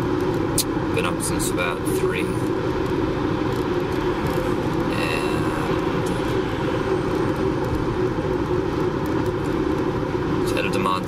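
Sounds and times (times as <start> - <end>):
engine rumbling and hissing: 0.0 - 11.0.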